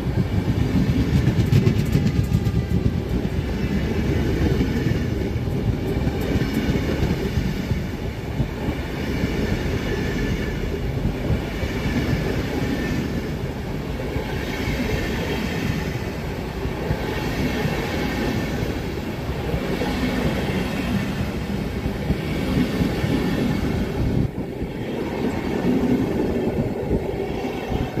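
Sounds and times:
train wheels on rails: 0.0s - 28.0s.

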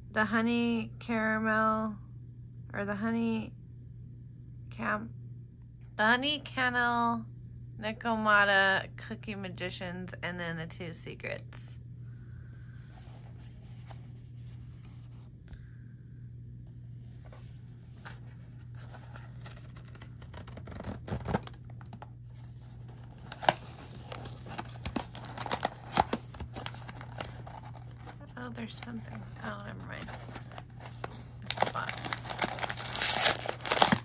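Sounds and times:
cardboard scraping: 17.0s - 34.0s
wrapping tearing: 18.6s - 34.0s
packaging clicks and crinkles: 18.7s - 34.0s.

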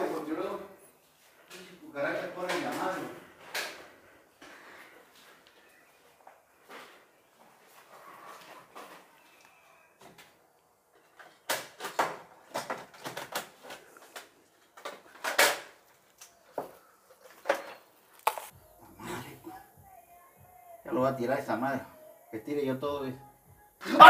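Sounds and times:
plastic bag crinkling: 18.0s - 18.5s.

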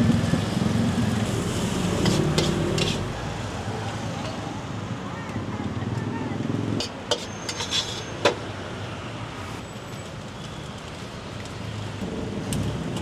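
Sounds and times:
vehicle engine: 0.0s - 4.5s
road traffic hum: 0.0s - 13.0s.

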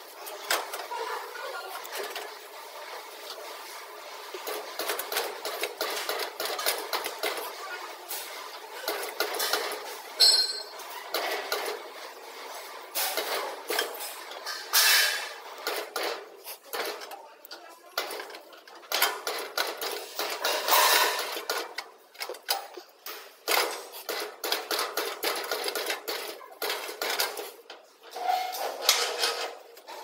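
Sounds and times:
sheet metal clattering in machine: 3.2s - 17.2s, 17.8s - 30.0s
ringing metal clang: 10.2s - 10.8s.

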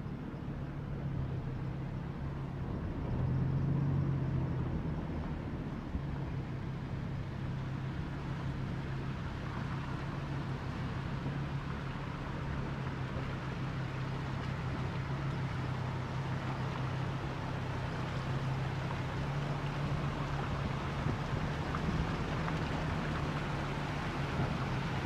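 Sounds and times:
low motor hum: 0.0s - 25.0s
flooded creek rushing: 6.8s - 25.0s.

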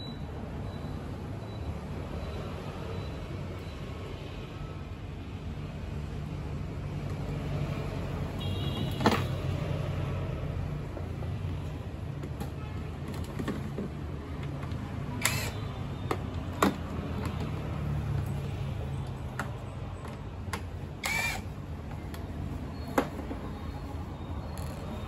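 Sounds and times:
plastic parts clicking and knocking: 12.1s - 18.4s.

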